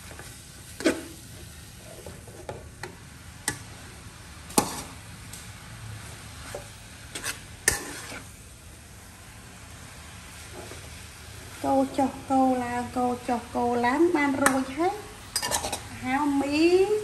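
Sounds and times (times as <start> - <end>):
food sizzling in wok: 0.0 - 17.0
metal spatula scraping and clacking: 0.1 - 1.2, 6.4 - 8.3, 15.3 - 15.9.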